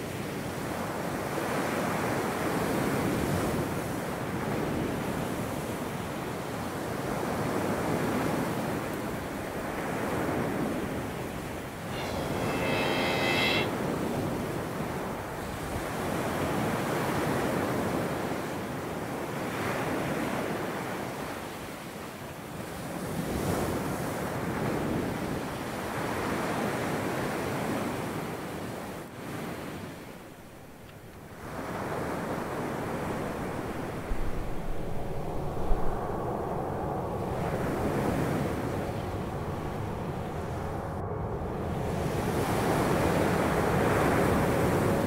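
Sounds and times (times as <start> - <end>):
waves washing in and out: 0.0 - 45.0
short pitched call: 11.9 - 13.9.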